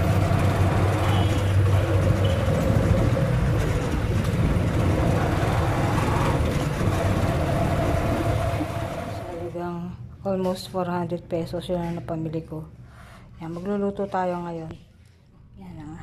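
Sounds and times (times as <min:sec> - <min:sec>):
road and wind noise: 0:00.0 - 0:09.4
small vehicle engine running: 0:00.0 - 0:09.4.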